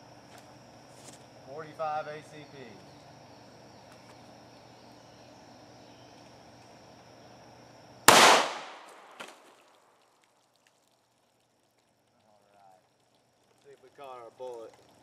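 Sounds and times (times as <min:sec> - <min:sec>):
pistol shot with echo: 0:08.1 - 0:09.3.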